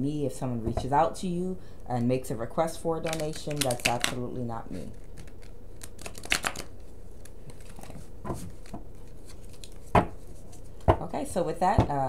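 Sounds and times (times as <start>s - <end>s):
cards being shuffled: 3.0s - 4.2s, 4.8s - 10.9s.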